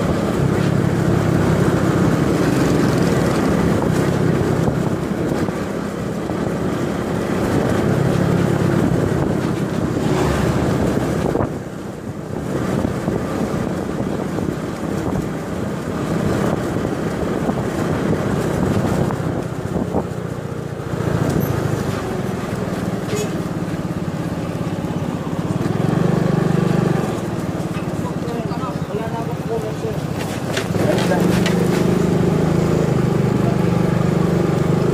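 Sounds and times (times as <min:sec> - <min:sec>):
motor scooter engine hum: 0:00.0 - 0:34.9
wind and road noise: 0:00.0 - 0:34.9.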